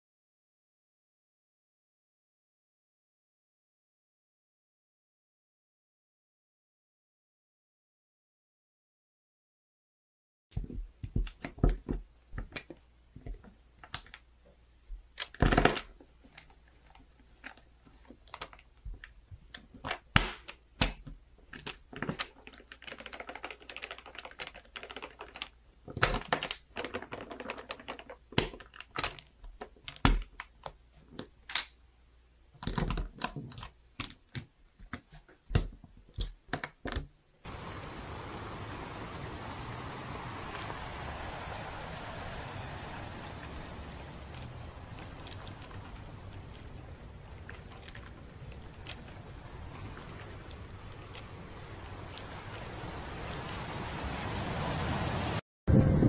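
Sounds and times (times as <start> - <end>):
plastic bricks rattling: 15.1 - 31.7, 32.6 - 37.1, 44.2 - 52.2
plastic bricks clicking together: 15.1 - 31.8, 32.6 - 37.1
soft rustling: 44.2 - 52.9.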